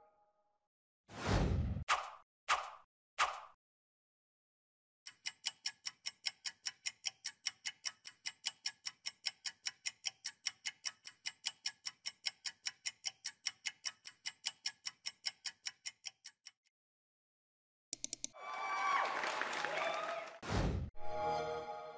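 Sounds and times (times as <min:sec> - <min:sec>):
clock ticking: 0:05.1 - 0:16.7, 0:18.0 - 0:18.4.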